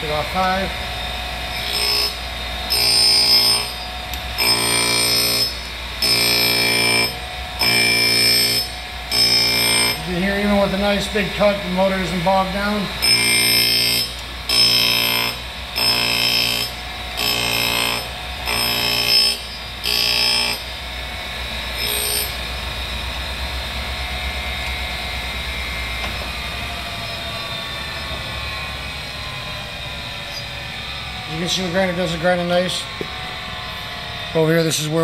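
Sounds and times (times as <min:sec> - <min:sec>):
motor hum with falling whine: 0:00.0 - 0:35.0
grinding wheel on metal: 0:01.4 - 0:20.8, 0:21.6 - 0:22.5.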